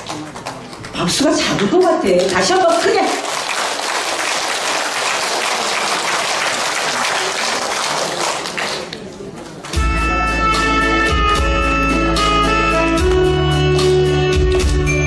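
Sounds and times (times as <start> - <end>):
audience applauding: 0.0 - 1.0, 2.2 - 9.8.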